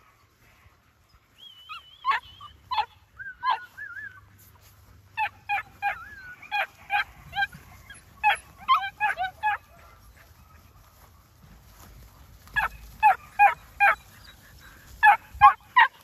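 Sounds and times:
puppies whining: 1.4s - 4.5s, 5.2s - 10.7s, 12.5s - 16.0s
puppies yelping: 1.6s - 11.0s, 12.4s - 16.0s.

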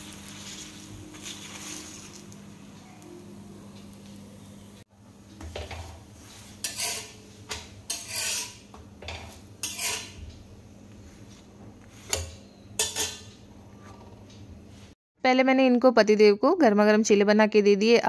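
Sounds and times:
spatula scraping griddle: 5.8s - 10.3s, 11.9s - 13.3s
spatula clinking on metal: 7.9s - 8.6s, 9.2s - 10.2s, 12.2s - 13.3s.

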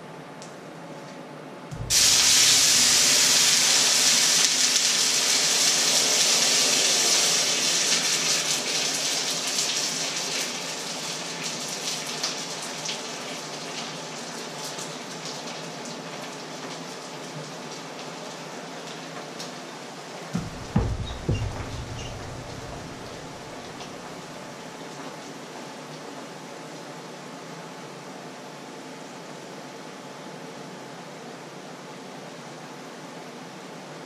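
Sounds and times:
water hissing in a hot pan: 1.8s - 18.6s.

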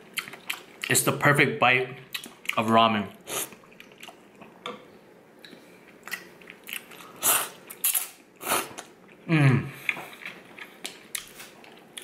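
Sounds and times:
soft chewing: 0.0s - 1.0s, 3.3s - 4.8s, 5.4s - 12.0s
person slurping noodles: 7.2s - 8.8s.

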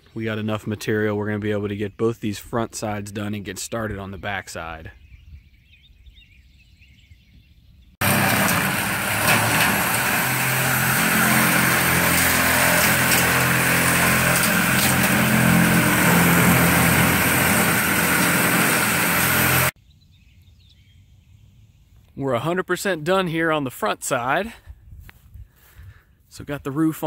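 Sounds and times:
electric shears cutting sheet metal: 8.0s - 19.8s.

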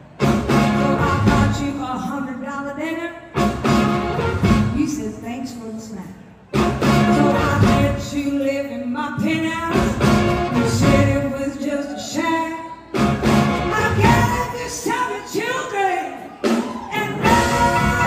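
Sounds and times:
blues-rock band playing: 0.1s - 1.8s, 3.3s - 5.0s, 6.5s - 8.1s, 9.7s - 11.3s, 12.9s - 14.6s, 16.4s - 18.0s
woman singing lead: 0.6s - 3.5s, 7.0s - 18.0s.

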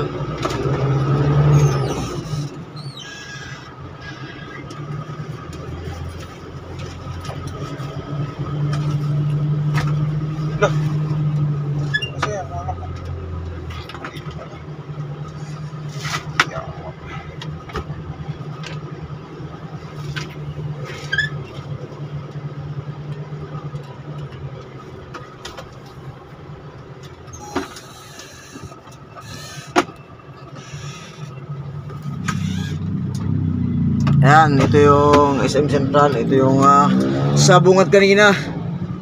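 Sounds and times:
vehicle engine running: 0.0s - 39.0s
sharp clicks and knocks: 34.0s - 35.4s.

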